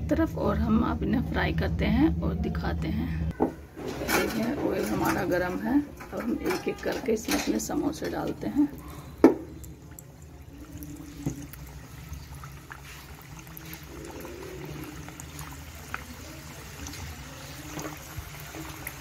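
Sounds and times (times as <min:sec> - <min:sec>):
food deep-frying in oil: 0:03.8 - 0:19.0.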